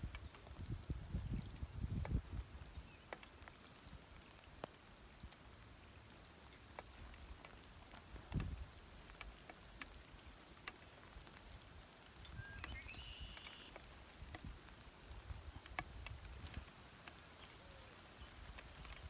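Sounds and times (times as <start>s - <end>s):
light rain on water: 0.0s - 19.0s.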